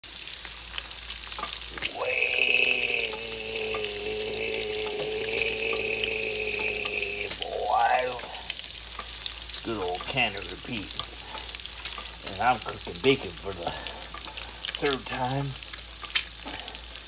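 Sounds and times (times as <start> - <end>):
bacon sizzling with pops: 0.0 - 17.0
steady held tone: 1.7 - 8.5.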